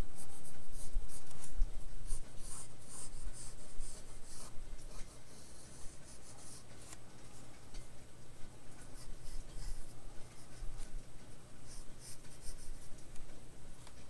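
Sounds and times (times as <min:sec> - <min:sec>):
pencil scratching on paper: 0:00.2 - 0:07.4, 0:08.8 - 0:10.9, 0:11.6 - 0:12.9.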